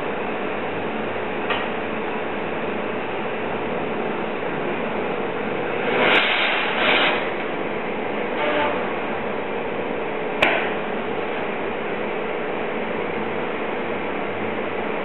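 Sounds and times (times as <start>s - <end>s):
burner hissing: 4.6s - 9.4s.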